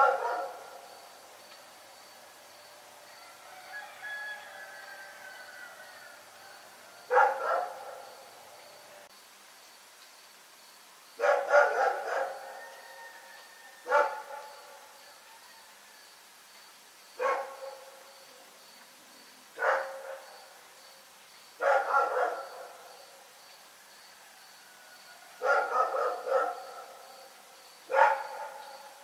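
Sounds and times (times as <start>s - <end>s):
dog barking: 0.0s - 0.8s, 7.1s - 8.1s, 11.2s - 12.7s, 13.8s - 14.6s, 17.2s - 17.9s, 19.6s - 20.3s, 21.6s - 22.8s, 25.4s - 27.0s, 27.9s - 28.8s.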